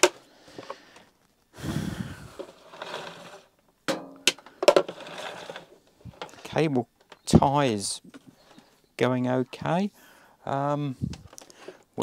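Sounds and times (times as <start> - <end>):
plastic casing scraping: 2.0 - 3.6, 4.2 - 7.4.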